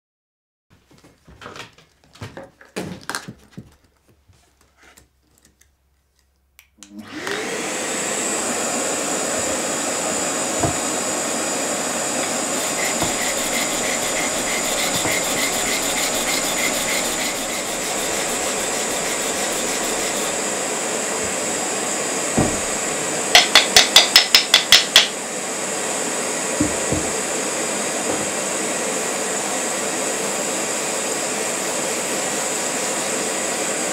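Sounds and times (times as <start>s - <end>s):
vacuum cleaner whining: 6.8s - 33.9s
sanding block rubbing: 12.5s - 20.4s.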